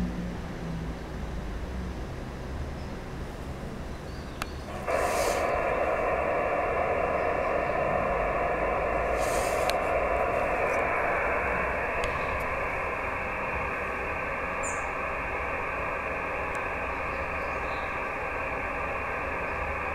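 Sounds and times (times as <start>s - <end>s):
radio receiver hiss: 4.3s - 19.9s
faint clicks: 9.5s - 11.0s, 16.5s - 16.7s.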